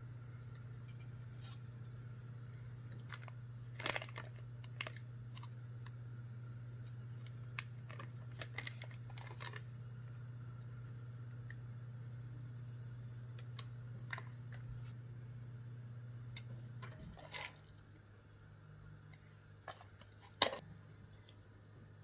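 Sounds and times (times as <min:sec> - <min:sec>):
steady low hum: 0:00.0 - 0:22.0
plastic packet crinkling: 0:02.9 - 0:05.9, 0:07.2 - 0:09.7.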